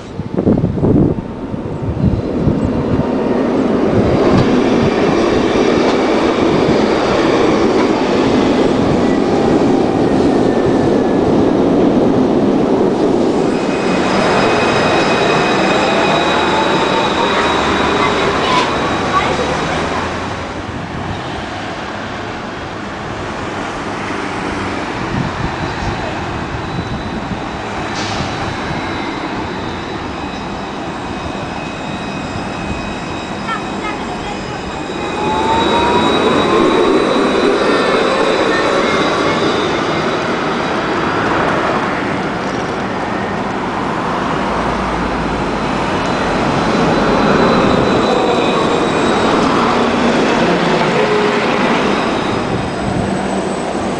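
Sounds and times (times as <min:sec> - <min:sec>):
city traffic hum: 0:00.0 - 0:53.9
tram approaching: 0:00.0 - 0:53.9
thin high whine: 0:26.7 - 0:41.4, 0:44.8 - 0:53.8.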